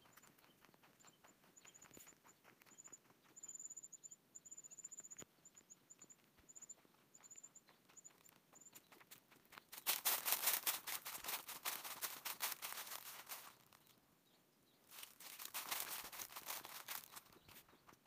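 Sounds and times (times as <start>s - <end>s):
footsteps crunching through dry leaves: 9.7s - 13.8s, 14.9s - 17.4s.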